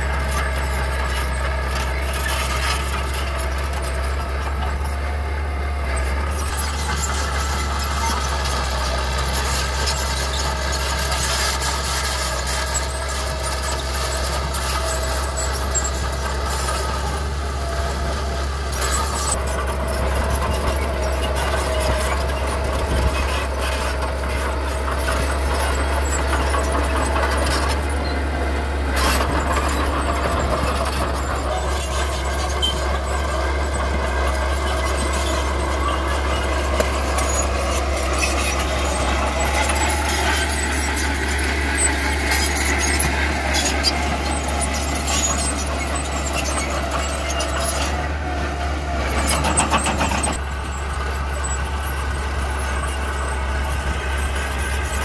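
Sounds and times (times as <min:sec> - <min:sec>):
bulldozer engine droning: 0:00.0 - 0:55.0.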